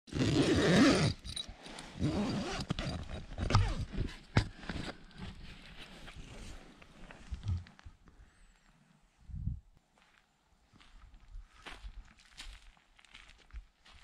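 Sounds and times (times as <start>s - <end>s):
camera handling rubbing and scraping: 1.0s - 7.8s.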